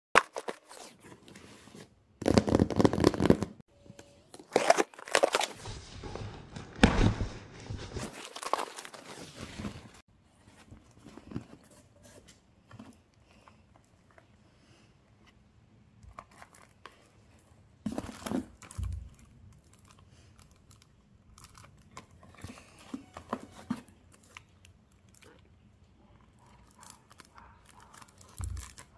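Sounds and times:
paper crinkling: 4.4 - 6.2, 7.1 - 12.3, 26.4 - 28.9
faint rustling of cartons: 4.4 - 28.9
cardboard box being torn open: 4.5 - 5.6.

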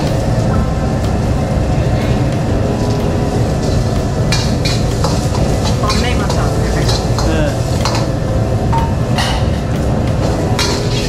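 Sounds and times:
loud rushing noise: 0.0 - 11.0
metal utensils clinking on pans: 2.8 - 11.0.

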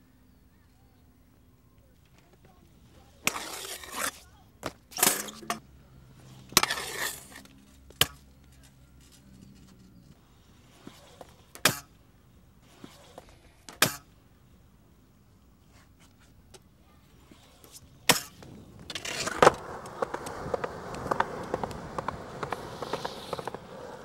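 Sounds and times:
hard wheels rolling on concrete: 17.1 - 24.0
scooter and skateboard clacks: 17.4 - 24.0.

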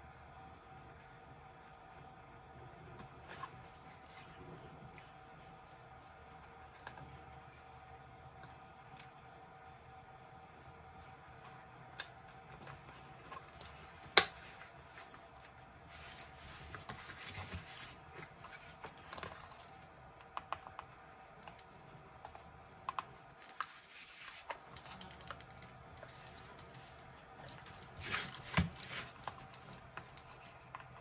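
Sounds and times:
faint steady hum: 0.0 - 31.0
small clicks taps and rustles: 16.6 - 31.0.

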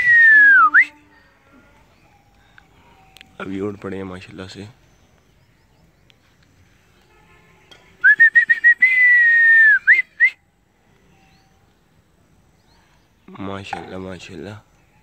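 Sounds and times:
man whistling: 0.0 - 1.0, 8.0 - 10.4.

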